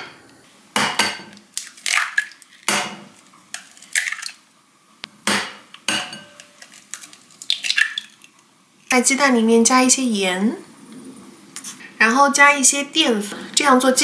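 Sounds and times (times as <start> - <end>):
eggshells cracking on glass bowl: 1.4 - 2.7, 3.5 - 4.4, 6.3 - 8.5.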